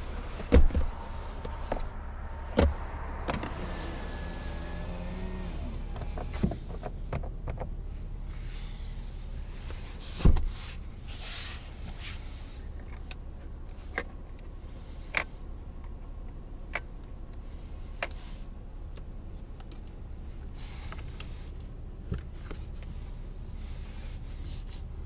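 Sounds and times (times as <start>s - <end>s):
low steady hum: 0.0s - 25.0s
heavy thump: 0.4s - 1.0s.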